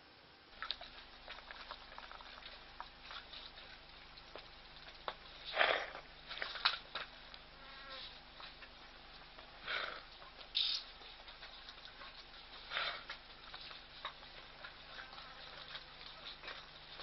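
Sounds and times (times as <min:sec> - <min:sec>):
faint hiss: 0:00.0 - 0:17.0
low steady hum: 0:00.0 - 0:17.0.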